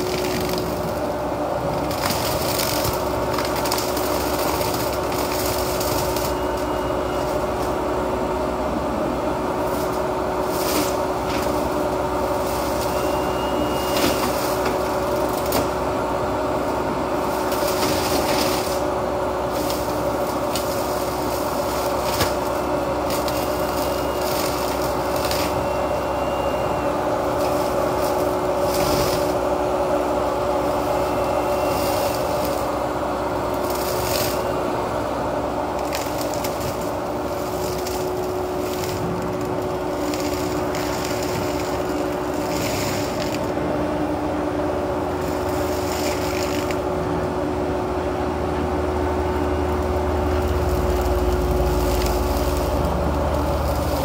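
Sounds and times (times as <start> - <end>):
excavator engine running: 0.0 - 54.0
flail mower shredding vegetation: 0.0 - 54.0.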